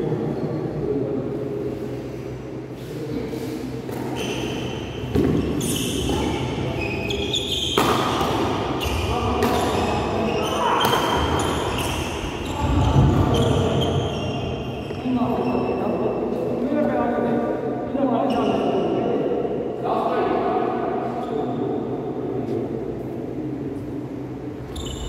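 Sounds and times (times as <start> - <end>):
rackets hitting shuttlecock: 7.7 - 8.7.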